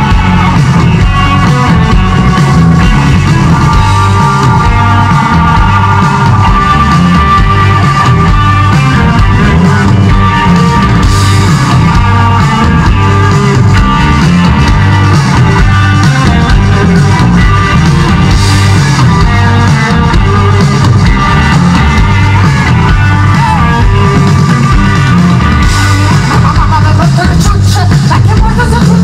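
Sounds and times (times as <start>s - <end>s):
live rock band playing: 0.0s - 29.0s.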